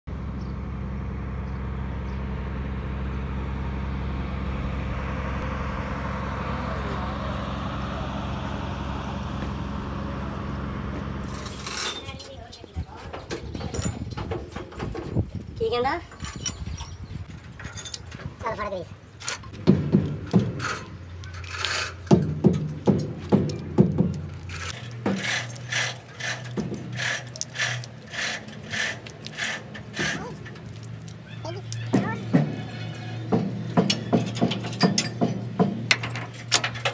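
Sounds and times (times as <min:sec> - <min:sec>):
truck engine idling: 0:00.1 - 0:11.6, 0:19.5 - 0:36.9
hand rubbing grease on metal: 0:24.1 - 0:31.9.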